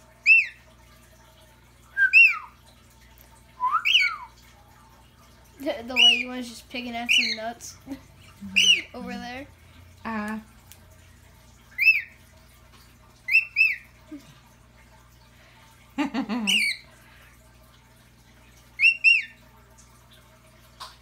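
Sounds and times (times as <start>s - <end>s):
cockatiel chirping: 16.5s - 16.8s, 18.8s - 19.3s.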